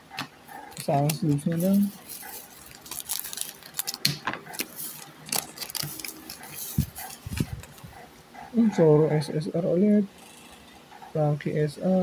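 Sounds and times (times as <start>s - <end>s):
foil wrapper crinkling and tearing: 0.8s - 7.8s.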